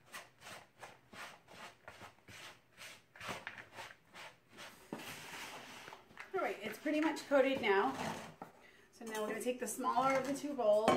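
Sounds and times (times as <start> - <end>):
spoon stirring dry mix in bowl: 0.0 - 8.6.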